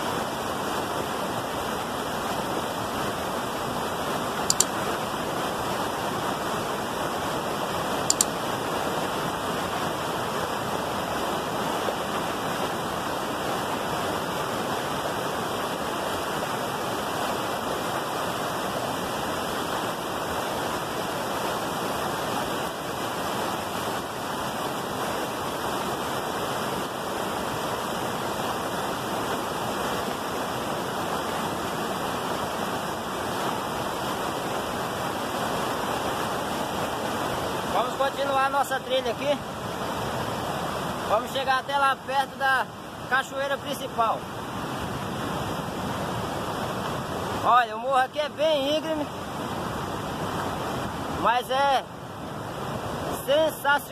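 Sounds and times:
whitewater rushing over boulders: 0:00.0 - 0:53.9
double click: 0:04.5 - 0:04.8, 0:08.1 - 0:08.4.

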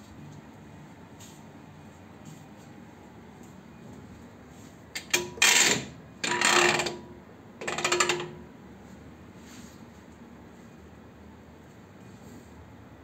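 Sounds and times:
metallic scraping and clicking: 0:05.0 - 0:07.0, 0:07.6 - 0:08.4.

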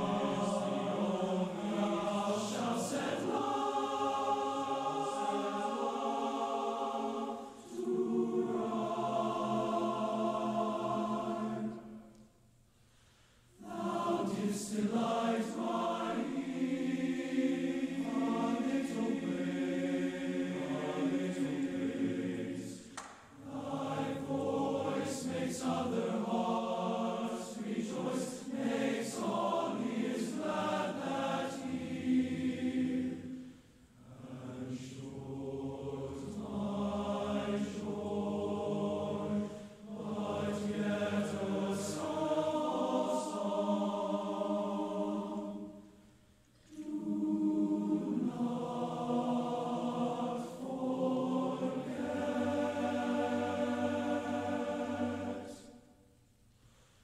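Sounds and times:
male choir singing: 0:00.0 - 0:12.2, 0:13.6 - 0:45.9, 0:46.7 - 0:55.9.

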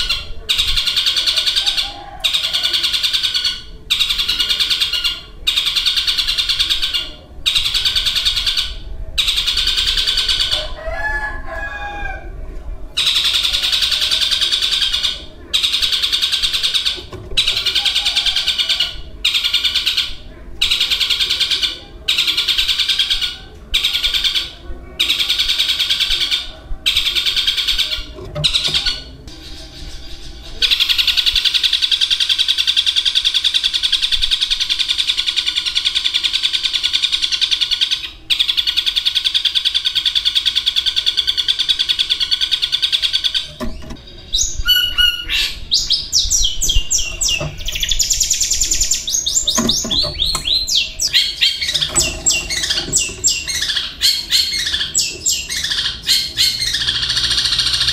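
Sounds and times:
shrike singing rapid chattering: 0:13.0 - 0:57.9.

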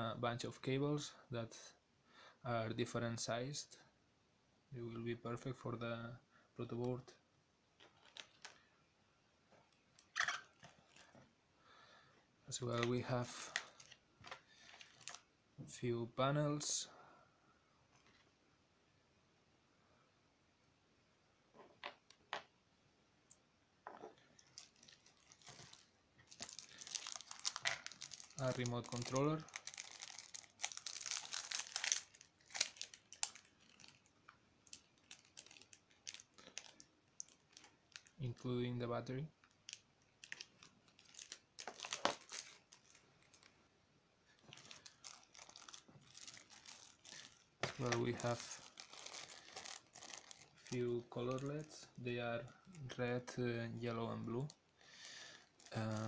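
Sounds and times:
plastic bags rustling: 0:09.9 - 0:11.2, 0:12.7 - 0:15.3, 0:24.2 - 0:38.2, 0:39.7 - 0:43.5, 0:44.3 - 0:51.8, 0:54.9 - 0:56.0.

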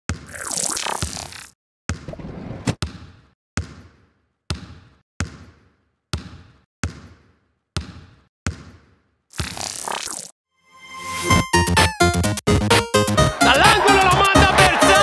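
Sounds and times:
basketball bouncing on hard court: 0:00.1 - 0:00.4, 0:01.9 - 0:09.6.

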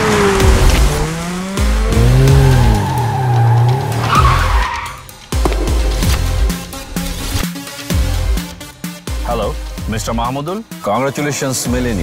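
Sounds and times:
car tyres screeching: 0:00.0 - 0:05.2.

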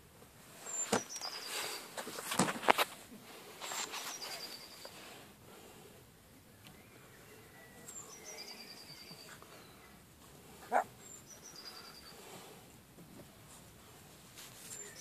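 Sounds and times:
songbird singing: 0:00.6 - 0:01.9, 0:03.6 - 0:05.0, 0:06.2 - 0:12.5, 0:14.6 - 0:15.0
dog barking: 0:10.7 - 0:10.9.

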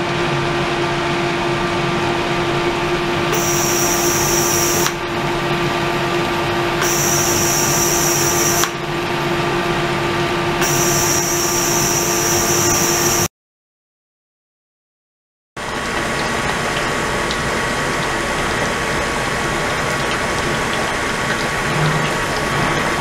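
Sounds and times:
water circulating hum and rush: 0:00.0 - 0:10.6, 0:15.6 - 0:23.0.

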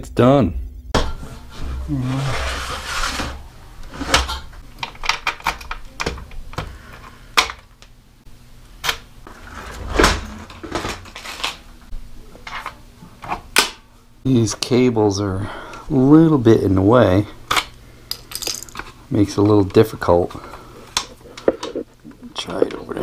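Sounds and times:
scrape on metal frame: 0:01.2 - 0:04.2.

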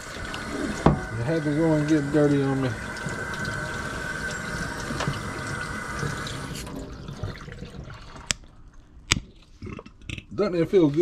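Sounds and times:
faucet running into steel sink: 0:00.0 - 0:08.4.

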